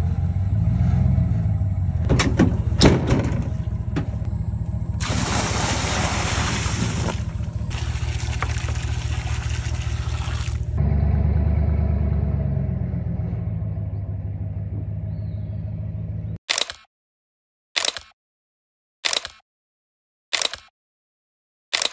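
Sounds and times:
pickup truck driving off: 0.0 - 16.0
pickup engine idling: 1.7 - 5.0, 7.1 - 9.3
water pouring from bucket: 5.0 - 10.8.

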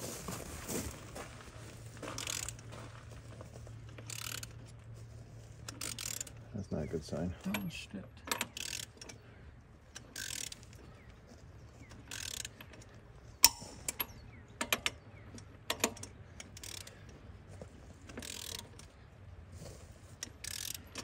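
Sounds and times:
ratchet wrench clicking: 2.2 - 2.7, 3.9 - 4.6, 5.6 - 6.4, 8.2 - 9.2, 9.9 - 10.9, 11.8 - 17.1, 18.1 - 19.0, 20.2 - 21.0
sharp metallic click: 13.4 - 15.0.

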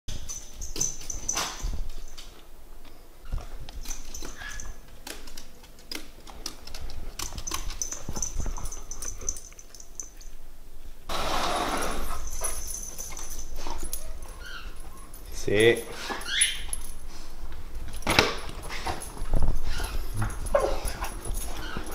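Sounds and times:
dog claws clicking on wooden stairs: 3.6 - 9.3.

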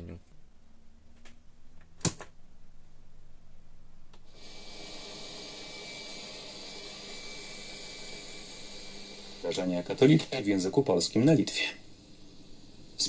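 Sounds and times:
radio static hiss with whistle: 9.4 - 13.0.

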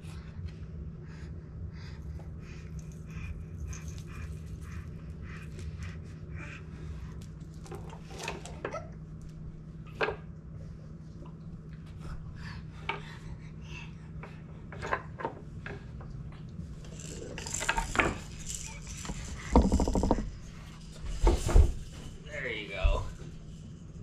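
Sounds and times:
steady low hum: 0.0 - 24.0
plastic toys clattering on wood: 7.6 - 8.8, 16.8 - 22.2.

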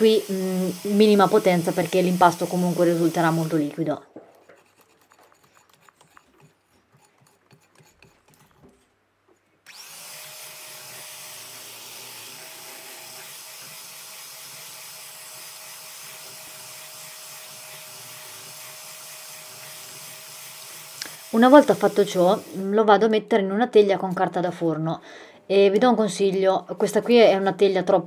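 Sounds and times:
electric hand mixer whine: 0.0 - 3.8, 9.7 - 22.7.

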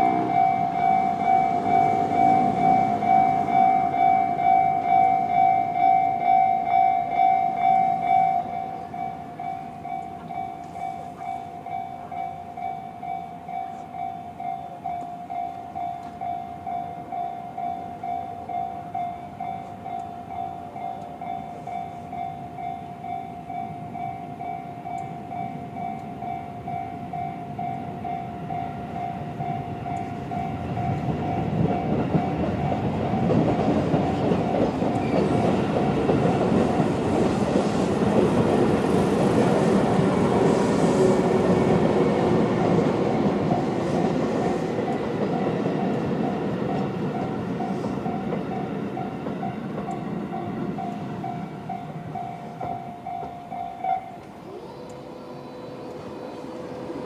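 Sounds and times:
level crossing warning bell: 0.0 - 57.0
train rumble and wheel clatter: 0.0 - 57.0.

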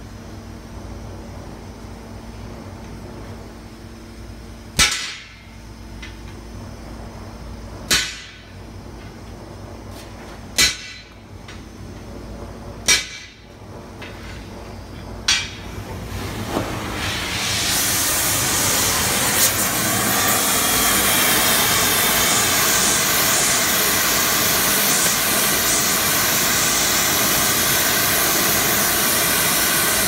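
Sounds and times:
hammer striking hot steel on anvil: 4.8 - 6.2, 7.9 - 8.6, 10.5 - 11.7, 12.8 - 14.4, 15.2 - 15.7, 21.9 - 27.4.

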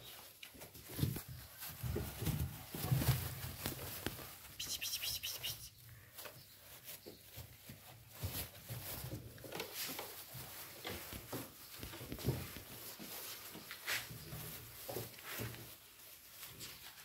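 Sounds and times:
puppies rustling in paper bedding: 0.0 - 17.0
light scratches and knocks: 6.2 - 17.0.

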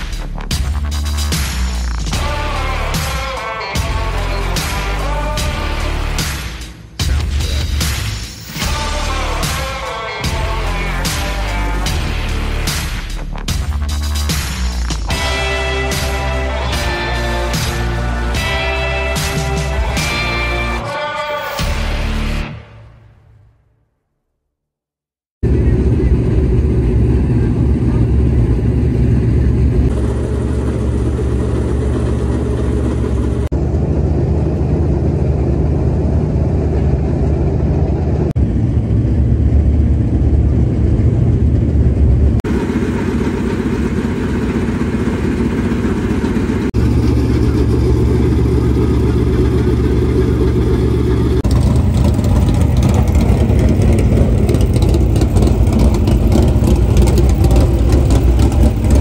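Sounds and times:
race car engines running loud: 25.4 - 59.0.

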